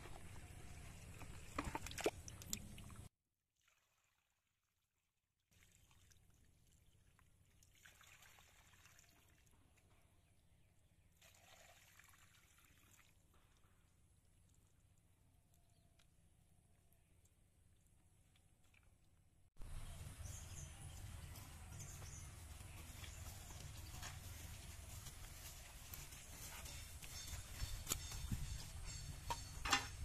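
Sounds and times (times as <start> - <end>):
water trickling and sloshing: 0.1 - 4.5, 5.5 - 10.1, 11.2 - 15.0.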